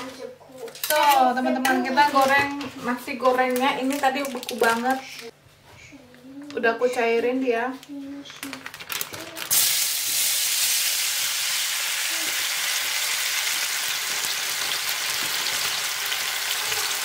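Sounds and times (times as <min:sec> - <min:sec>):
fried rice sizzling in a wok: 0:09.5 - 0:17.0.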